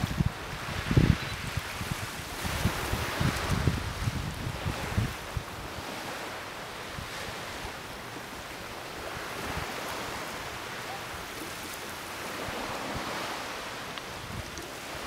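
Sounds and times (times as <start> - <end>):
small waves washing on shore: 0.0 - 15.0
wind: 0.0 - 15.0.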